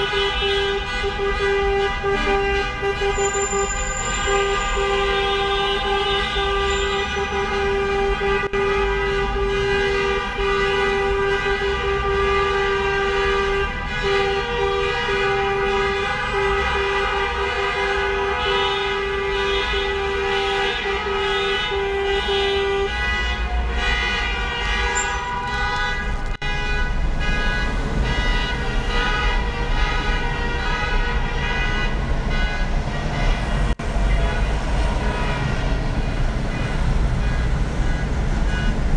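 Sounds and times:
car horns honking: 0:00.0 - 0:38.9
short horn beeps: 0:24.7 - 0:26.2.

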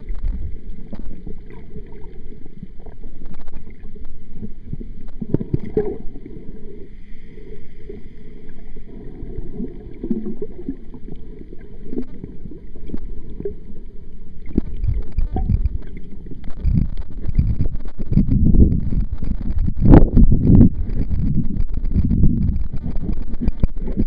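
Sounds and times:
muffled underwater water noise: 0:00.0 - 0:24.0
scattered clicks: 0:14.6 - 0:24.0.

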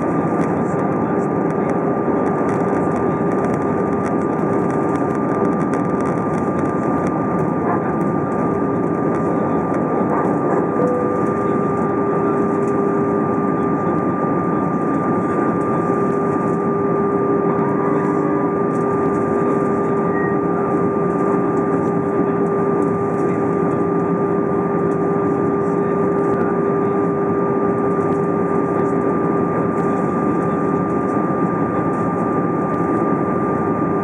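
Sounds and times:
jet engines: 0:00.0 - 0:34.0
thin steady whine: 0:00.0 - 0:34.0
low hum: 0:08.1 - 0:25.2.

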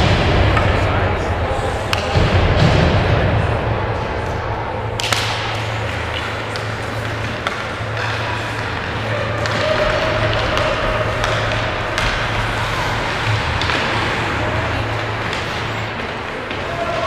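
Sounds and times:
steady low hum: 0:00.0 - 0:17.0
sticks clacking on puck: 0:05.0 - 0:17.0.

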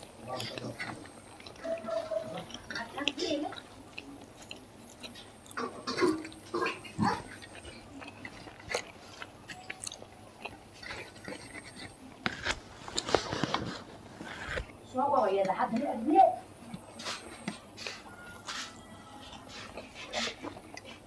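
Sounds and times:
chewing: 0:00.0 - 0:21.0
fried papad crackling: 0:00.0 - 0:21.0.

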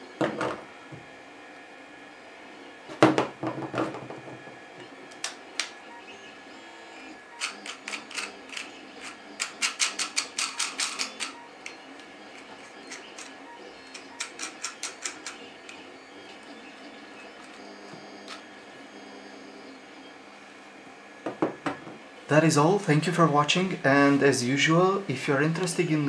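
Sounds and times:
plastic parts clicking together: 0:07.4 - 0:15.8.

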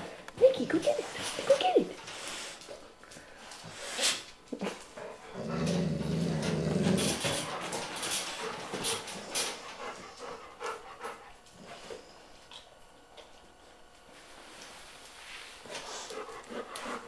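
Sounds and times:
dog growling low: 0:04.6 - 0:07.4.

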